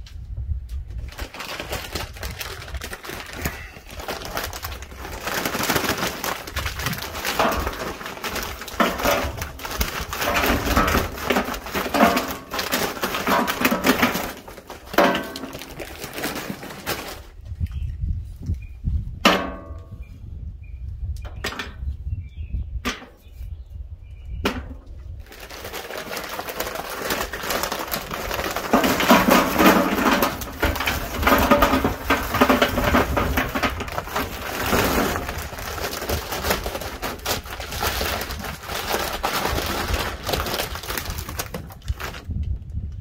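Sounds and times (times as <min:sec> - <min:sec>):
briquettes clattering onto metal: 0:05.0 - 0:17.2, 0:25.6 - 0:37.5.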